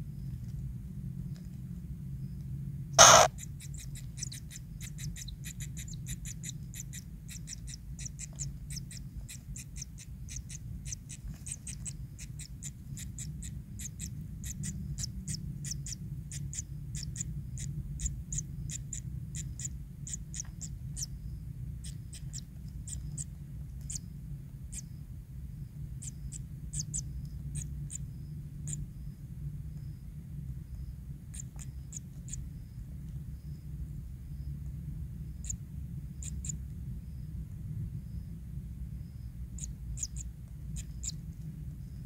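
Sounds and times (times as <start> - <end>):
steady low hum: 0.0 - 42.0
nestlings begging chirps: 3.0 - 24.1, 26.0 - 29.1, 30.7 - 32.8, 35.3 - 35.6, 36.2 - 36.6, 39.1 - 42.0.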